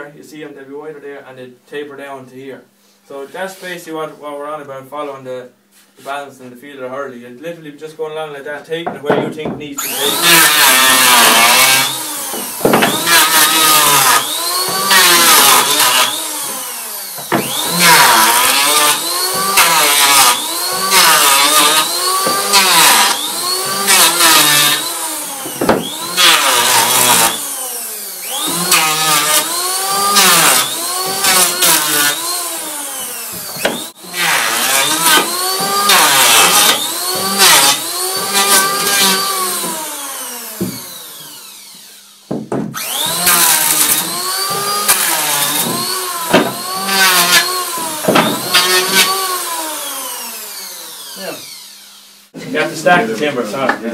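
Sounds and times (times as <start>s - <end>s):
electric planer shaving wood: 9.8s - 52.7s.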